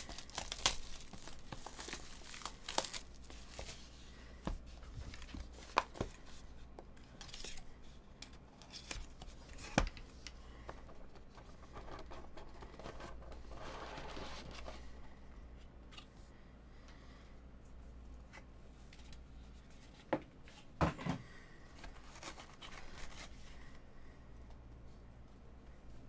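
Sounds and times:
plastic wrap tearing and crinkling: 0:00.0 - 0:03.8.

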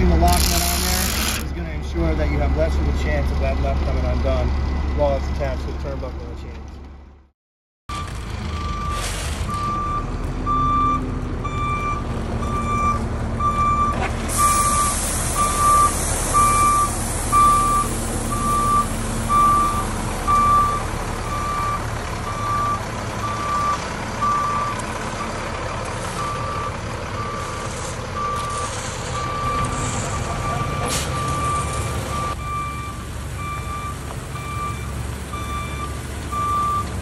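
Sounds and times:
diesel engine running: 0:00.0 - 0:07.3, 0:07.9 - 0:37.0
reverse alarm beeping: 0:07.9 - 0:24.8, 0:26.2 - 0:27.6, 0:28.2 - 0:36.9.

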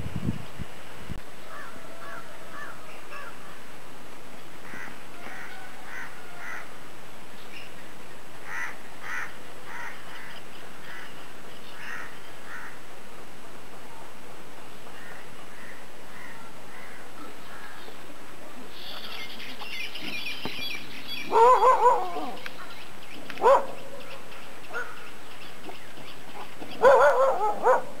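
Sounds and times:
steady hiss: 0:00.0 - 0:21.3.

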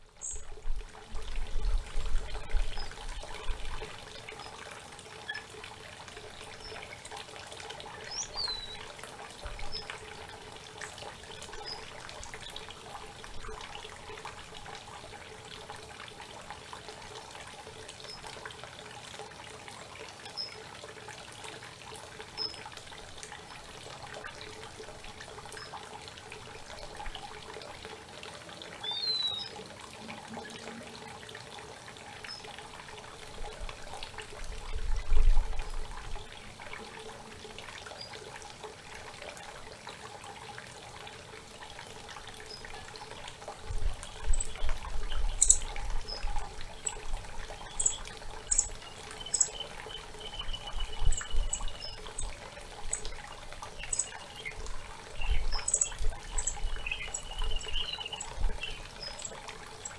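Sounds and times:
creek water flowing: 0:00.0 - 0:59.9
songbird chirping: 0:08.0 - 0:08.9, 0:28.8 - 0:29.6, 0:44.1 - 0:53.2, 0:53.8 - 0:54.6, 0:55.2 - 0:59.9.

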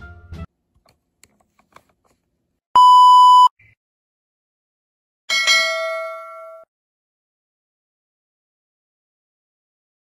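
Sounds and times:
loud electronic beep: 0:02.8 - 0:03.5.

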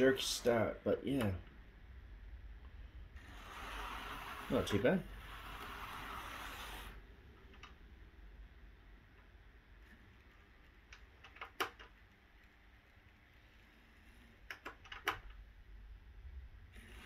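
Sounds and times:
model steam locomotive running: 0:03.2 - 0:07.0
sharp clicks: 0:10.8 - 0:12.2, 0:14.4 - 0:15.4.

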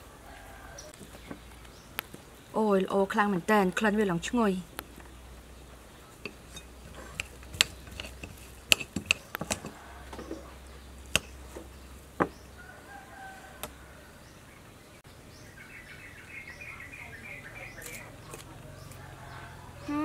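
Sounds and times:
spoon scraping ceramic plate: 0:06.2 - 0:10.5.

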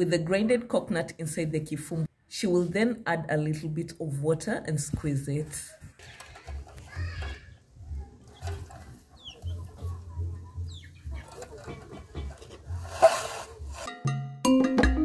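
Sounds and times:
rustling: 0:05.7 - 0:13.9
birds chirping: 0:05.9 - 0:12.8
chickens clucking: 0:05.9 - 0:13.8
music with plinking percussion: 0:13.9 - 0:15.0.

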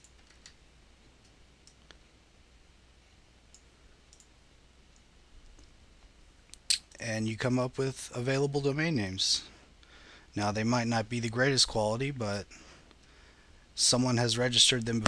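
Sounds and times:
low steady hum: 0:00.0 - 0:15.0
faint computer mouse clicks: 0:03.5 - 0:04.3.

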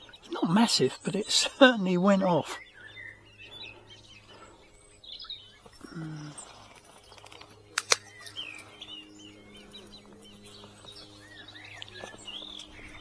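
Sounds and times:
songbirds chirping: 0:00.0 - 0:13.0
sharp clicks: 0:07.2 - 0:08.6.

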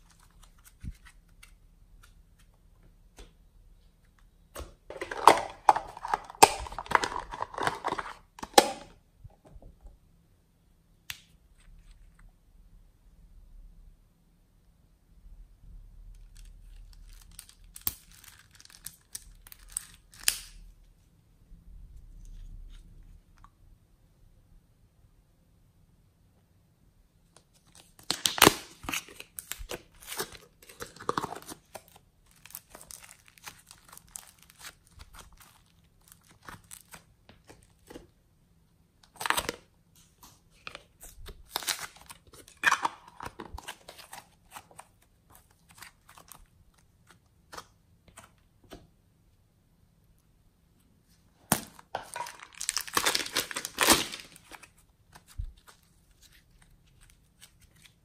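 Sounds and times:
plastic bag crinkling: 0:04.9 - 0:08.2, 0:51.9 - 0:54.8.

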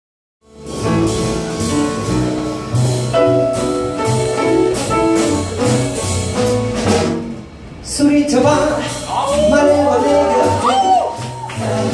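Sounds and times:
grand piano chords: 0:00.4 - 0:10.6
upright bass line: 0:00.5 - 0:07.4.

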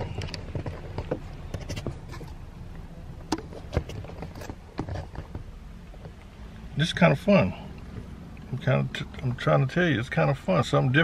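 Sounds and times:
light clicks and knocks: 0:00.0 - 0:06.4
car cabin rumble: 0:00.0 - 0:11.0.

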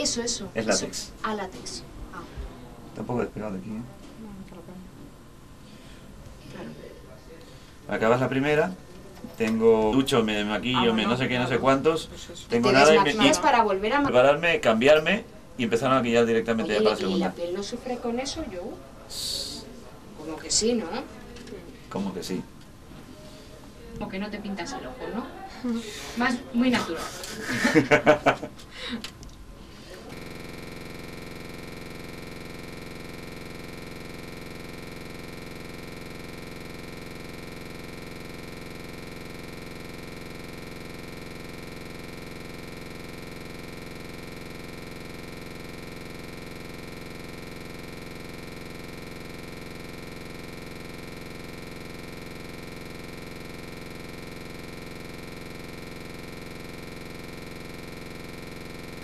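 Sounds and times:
steady electronic drone: 0:30.1 - 0:59.0.

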